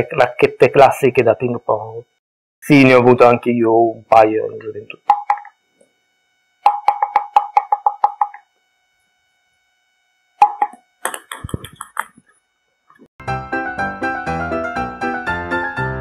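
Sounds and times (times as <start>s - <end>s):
ping pong ball tapping paddle: 6.7s - 8.4s, 10.4s - 12.2s
piano music: 13.2s - 16.0s.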